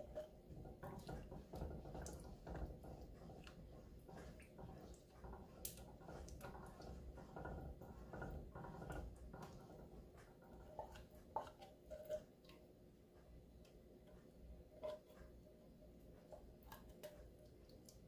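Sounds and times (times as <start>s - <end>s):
utensils tapping cooking pan: 0.0s - 12.7s.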